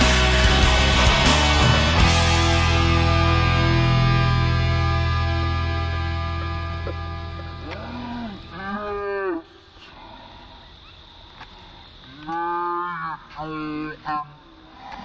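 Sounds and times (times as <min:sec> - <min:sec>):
music chord: 0:00.0 - 0:07.7.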